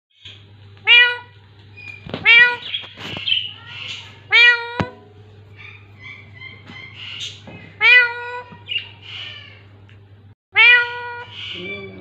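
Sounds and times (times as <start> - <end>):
steady low hum: 0.2 - 12.0
parakeet mewing like a cat: 0.8 - 1.4, 2.0 - 9.8, 10.5 - 12.0
parakeet chattering: 1.8 - 4.8, 5.5 - 9.6, 10.6 - 12.0.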